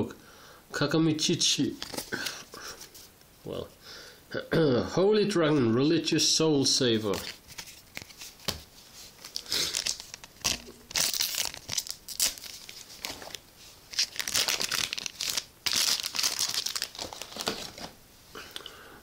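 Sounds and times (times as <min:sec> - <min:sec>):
foil pack crinkling and tearing: 0:09.2 - 0:18.0.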